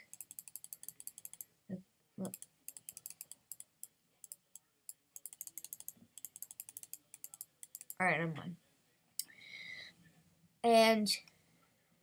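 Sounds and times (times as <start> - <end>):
rapid computer clicking: 0.0 - 1.5, 2.2 - 4.6, 5.2 - 8.0.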